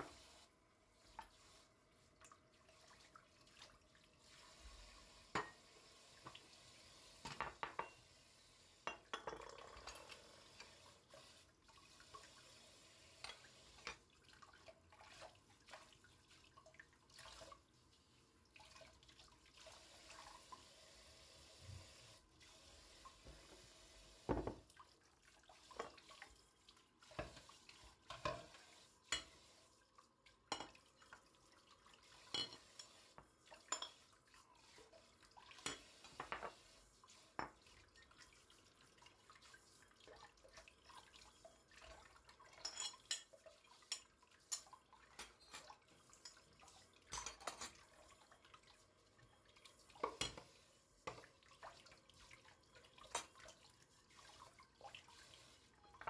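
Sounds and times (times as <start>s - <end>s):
dishes clinking: 5.4s - 5.6s, 8.9s - 10.0s, 32.3s - 33.0s, 42.6s - 43.3s
tap water trickling: 24.2s - 24.9s, 25.7s - 26.4s, 37.4s - 55.0s.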